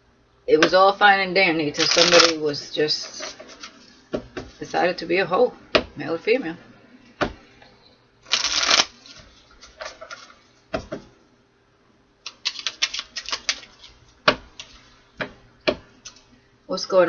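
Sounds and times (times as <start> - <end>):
cards riffling: 1.8 - 3.9, 8.2 - 10.4, 12.3 - 14.0.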